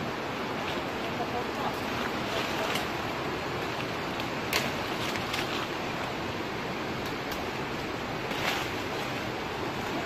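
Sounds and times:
branches snapping and rustling: 0:04.1 - 0:05.7.

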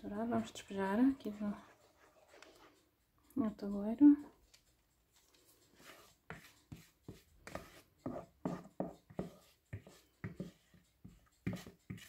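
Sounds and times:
wooden stick scraping plastic bowl: 0:05.2 - 0:12.0.

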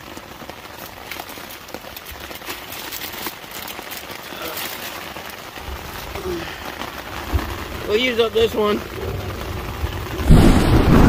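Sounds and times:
rain pattering on a tent: 0:00.0 - 0:11.0.

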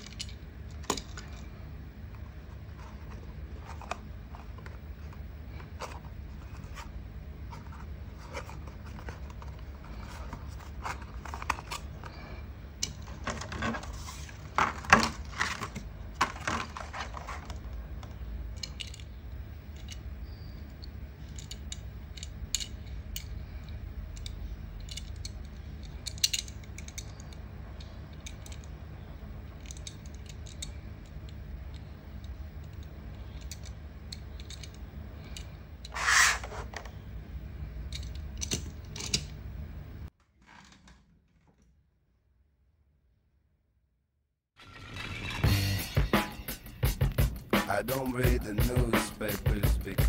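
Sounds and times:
steady low hum: 0:00.0 - 0:40.1
cardboard packaging rustling: 0:13.0 - 0:17.8.

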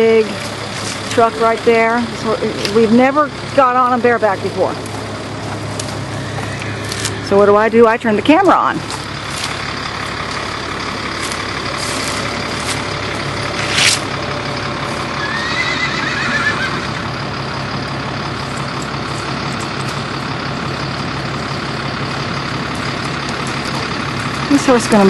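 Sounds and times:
diesel truck engine idling: 0:00.0 - 0:25.0
horse whinnying: 0:06.0 - 0:07.4, 0:15.2 - 0:17.0.

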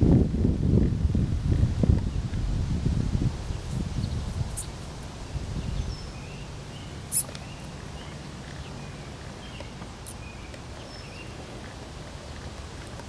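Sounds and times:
faint bird chirps: 0:05.6 - 0:11.4
sharp high-pitched squeak: 0:07.1 - 0:07.3.

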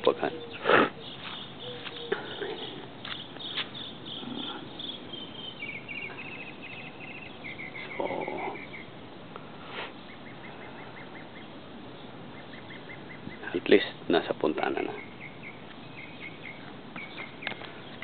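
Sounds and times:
high-pitched chirping trills: 0:00.0 - 0:08.9.

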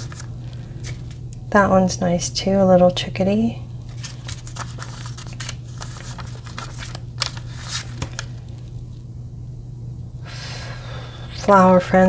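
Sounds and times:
paper stickers rustling: 0:00.0 - 0:01.2, 0:03.9 - 0:08.8
steady low hum: 0:00.0 - 0:12.0.

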